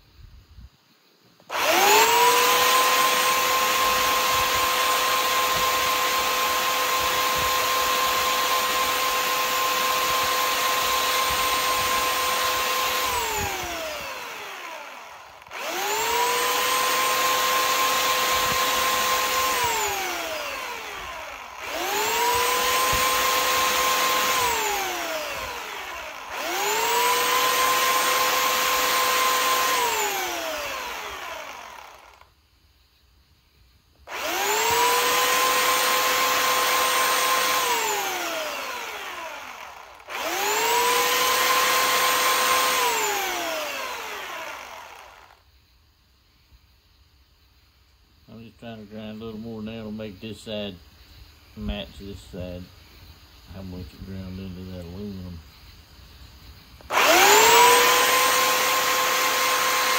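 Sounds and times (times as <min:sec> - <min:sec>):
electric grinder whining: 0:01.5 - 0:32.3, 0:34.1 - 0:45.4, 0:56.8 - 0:59.9.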